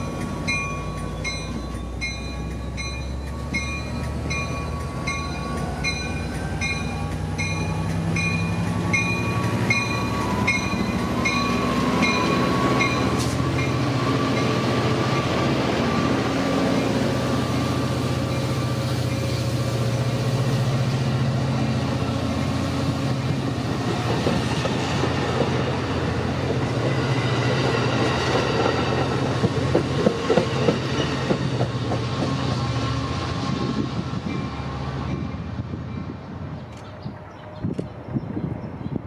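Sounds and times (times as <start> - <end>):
train engine drone: 0.0 - 39.0
train wheels clacking over rail joints: 27.6 - 32.4.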